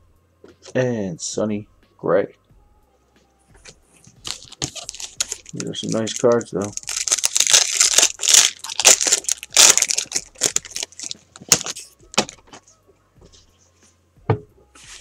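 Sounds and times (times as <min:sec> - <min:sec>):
foil wrapper tearing and crinkling: 0:04.2 - 0:12.4.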